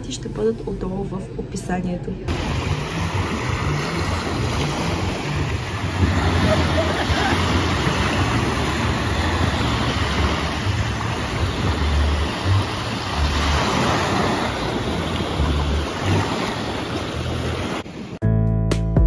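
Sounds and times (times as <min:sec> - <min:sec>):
sea water rushing: 0:02.3 - 0:18.2
wind buffeting microphone: 0:02.3 - 0:18.2.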